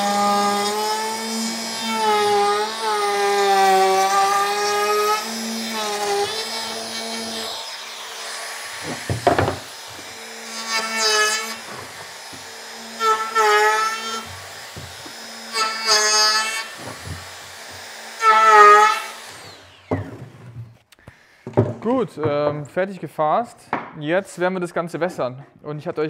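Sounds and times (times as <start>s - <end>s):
router motor humming: 0.0s - 20.2s
router cutting wood: 0.0s - 20.7s.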